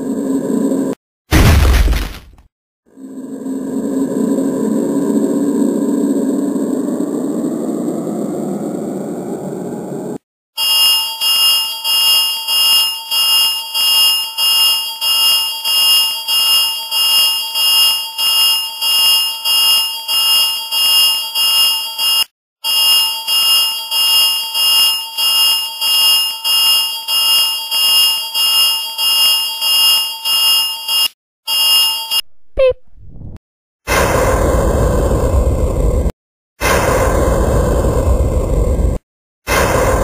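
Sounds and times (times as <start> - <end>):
pulsing electronic alarm: 10.6 - 32.2.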